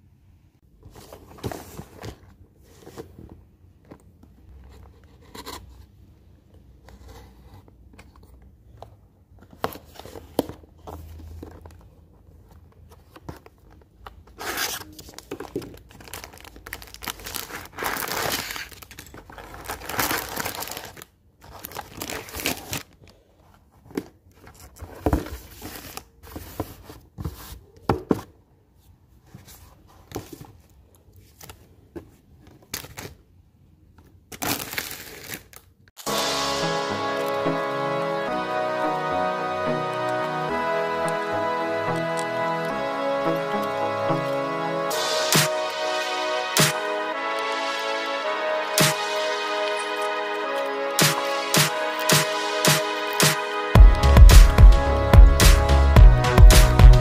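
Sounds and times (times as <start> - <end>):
plastic bags crinkling: 13.6 - 23.0.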